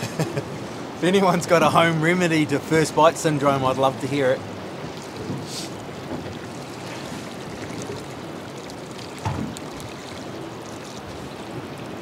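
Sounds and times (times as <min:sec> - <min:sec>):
water lapping against boat hull: 0:04.2 - 0:12.0.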